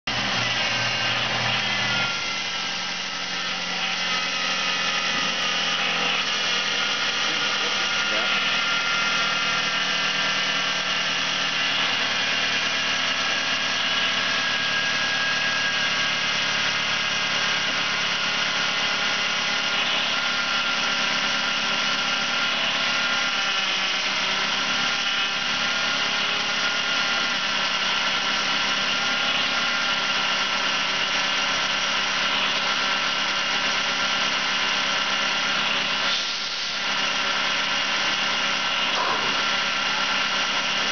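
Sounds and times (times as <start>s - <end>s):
car engine idling: 0.1s - 28.5s.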